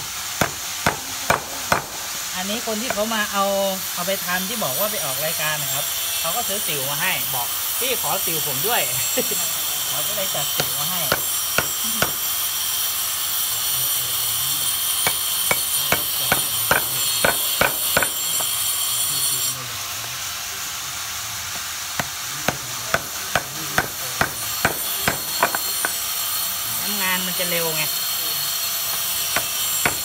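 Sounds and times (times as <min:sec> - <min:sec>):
hammer striking chisel on wood: 0:00.4 - 0:02.0, 0:02.8 - 0:03.2, 0:10.5 - 0:12.3, 0:14.9 - 0:18.8, 0:21.5 - 0:26.1, 0:28.9 - 0:30.0.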